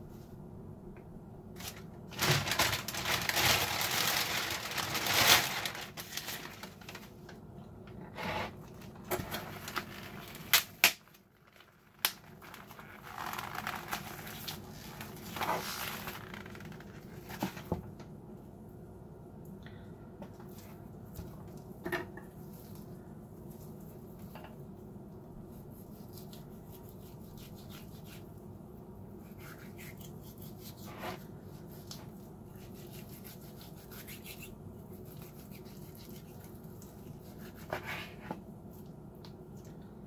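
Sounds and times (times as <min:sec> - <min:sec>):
plastic packaging crinkling and tearing: 0:01.6 - 0:07.2, 0:09.1 - 0:17.6.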